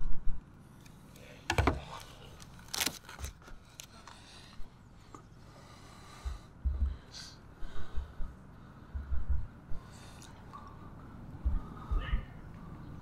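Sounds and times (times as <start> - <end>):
low thumps: 6.2 - 7.1, 7.8 - 9.8, 11.4 - 12.3.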